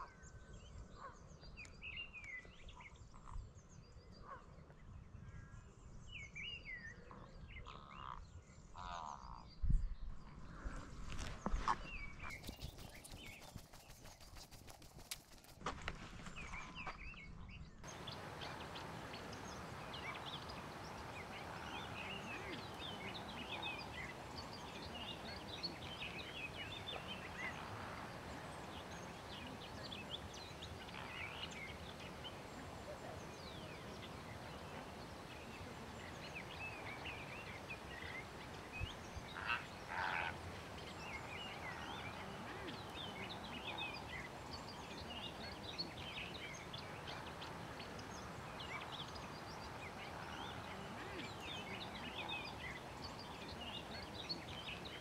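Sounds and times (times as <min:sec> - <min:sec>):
flamingos honking and gabbling: 0:17.9 - 0:55.0.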